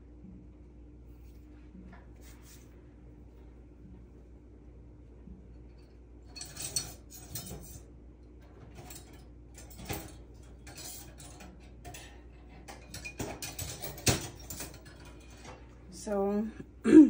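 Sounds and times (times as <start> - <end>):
metal cutlery clinking: 6.3 - 7.9, 8.7 - 15.6.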